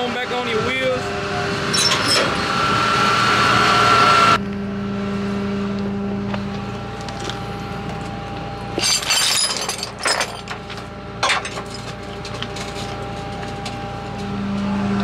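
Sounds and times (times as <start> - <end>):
tow chains clanking and rattling: 1.7 - 2.4, 8.7 - 14.4
truck engine idling: 9.7 - 15.0.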